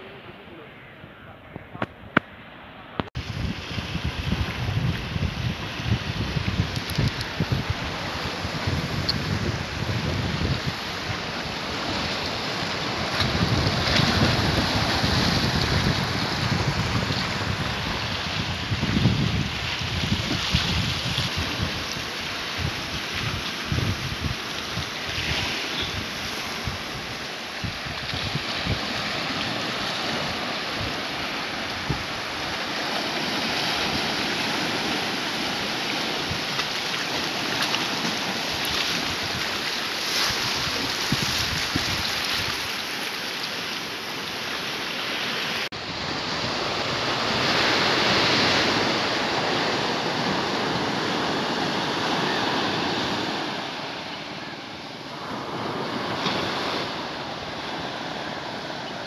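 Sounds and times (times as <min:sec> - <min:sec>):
surf breaking over rocks: 0:01.6 - 0:59.0
wind buffeting microphone: 0:03.0 - 0:36.7, 0:37.5 - 0:42.8.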